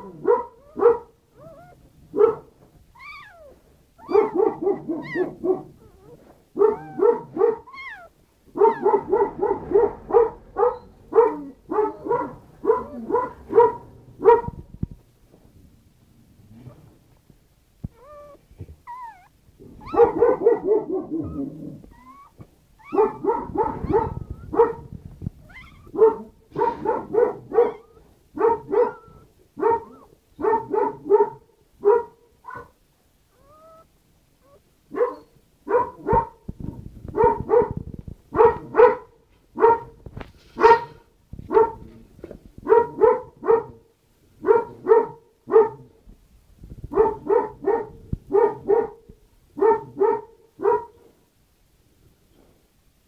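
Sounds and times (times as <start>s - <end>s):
dog barking: 0.0s - 2.6s, 4.0s - 5.8s, 6.6s - 14.6s, 19.8s - 21.6s, 22.8s - 24.9s, 25.5s - 32.8s, 34.5s - 36.5s, 37.1s - 40.0s, 40.6s - 42.0s, 42.6s - 46.0s, 46.9s - 51.2s
dog whining: 0.6s - 1.9s, 2.9s - 9.0s, 17.9s - 20.4s, 21.0s - 24.6s, 25.4s - 26.8s, 27.6s - 28.1s, 28.7s - 30.2s, 33.3s - 35.4s.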